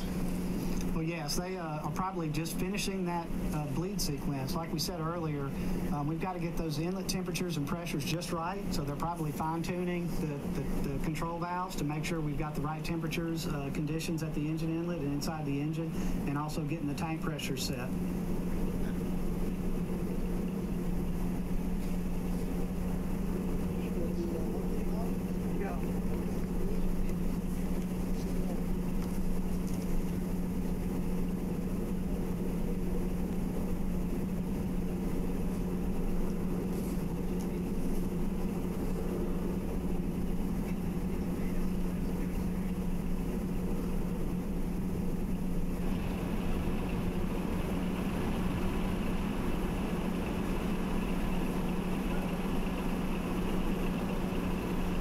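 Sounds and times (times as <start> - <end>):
steady high hiss: 0.0 - 55.0
test stand low hum: 0.0 - 55.0.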